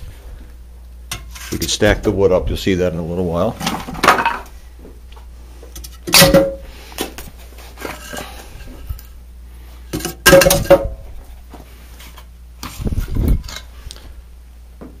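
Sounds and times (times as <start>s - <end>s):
firewood clunking against metal: 3.6s - 4.5s.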